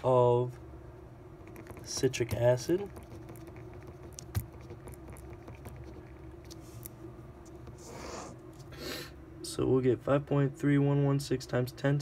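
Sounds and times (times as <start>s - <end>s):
steady low hum: 0.0s - 12.0s
pen scratching on paper: 1.4s - 6.6s.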